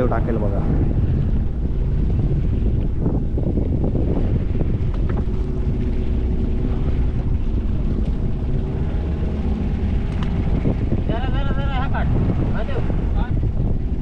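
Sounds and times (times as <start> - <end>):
boat engine running: 0.0 - 14.0
wind buffeting microphone: 0.0 - 14.0.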